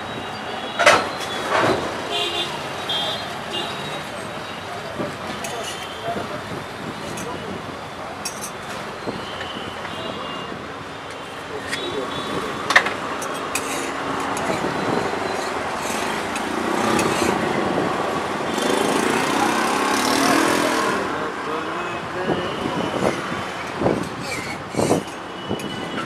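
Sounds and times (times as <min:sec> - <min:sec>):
traffic: 0:00.0 - 0:26.0.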